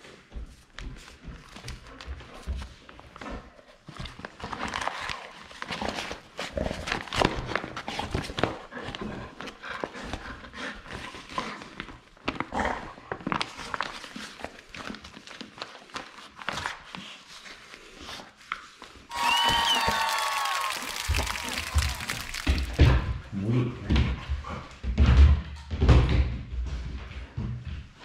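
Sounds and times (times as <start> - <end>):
paper rustling and crackling: 13.2 - 17.8, 19.2 - 22.8.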